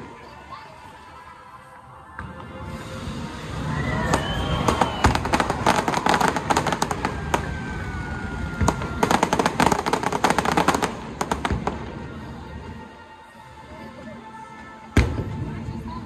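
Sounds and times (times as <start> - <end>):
fireworks crackling: 2.2 - 13.0
whistling tone gliding down: 3.3 - 8.7.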